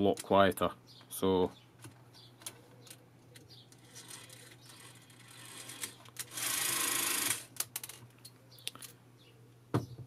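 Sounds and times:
camera mechanism whirring clatter: 3.8s - 7.9s.

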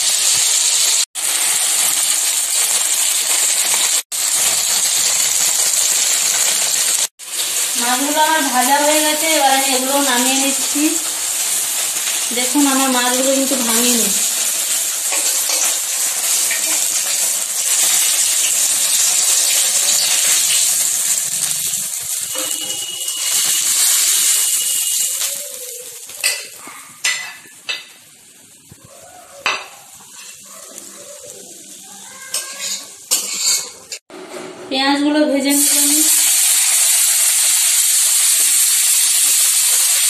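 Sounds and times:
hot oil sizzling in a pan: 0.0s - 28.8s, 29.4s - 34.0s, 35.4s - 40.0s.

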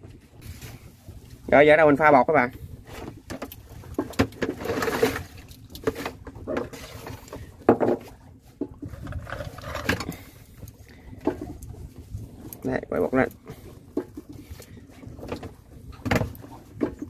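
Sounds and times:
light knocks and clatter: 5.8s - 10.2s.

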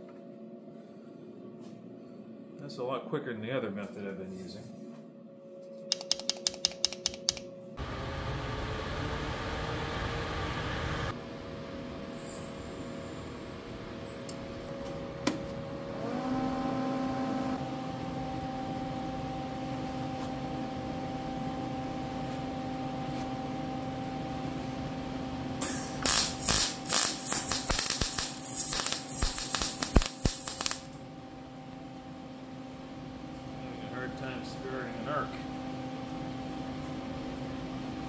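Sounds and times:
steady hum: 0.0s - 38.0s
welding arc crackling: 25.6s - 31.0s.

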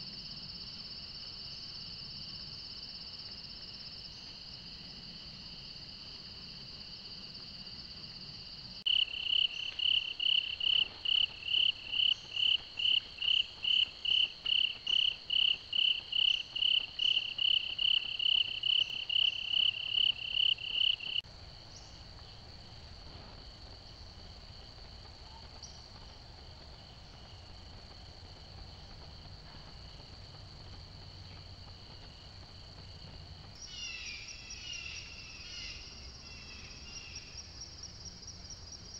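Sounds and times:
close cricket chirping: 0.0s - 38.9s
crickets trilling: 0.0s - 38.9s.

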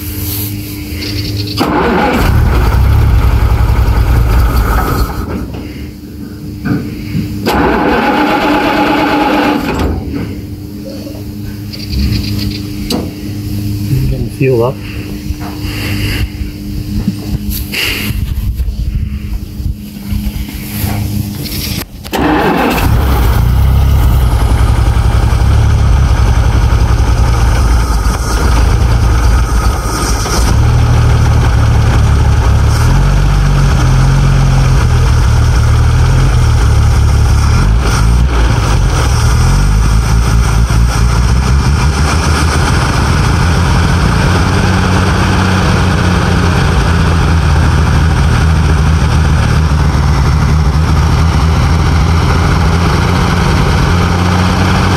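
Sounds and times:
truck engine starting and running: 0.0s - 54.9s.

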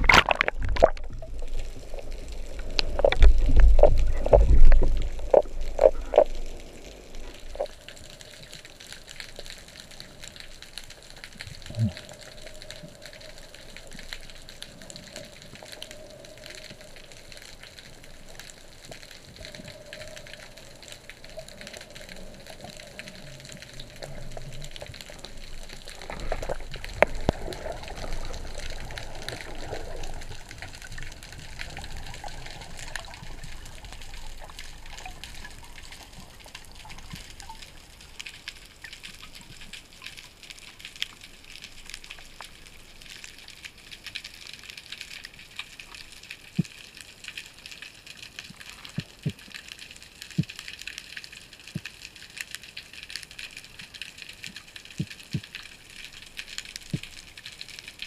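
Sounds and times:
water rushing with deep rumble: 0.0s - 8.2s, 19.4s - 38.9s
underwater hiss with crackling ticks: 0.1s - 58.0s.

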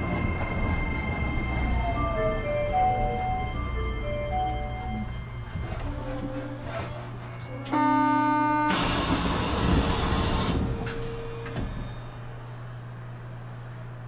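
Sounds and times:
train doors sliding open: 0.0s - 12.8s
electronic door chime: 1.8s - 5.4s.

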